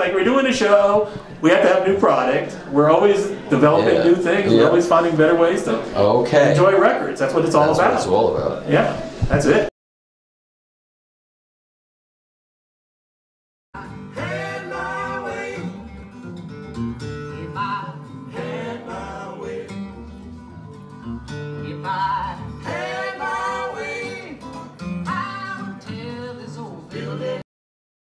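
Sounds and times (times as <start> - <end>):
song with singing and guitar: 13.8 - 27.4.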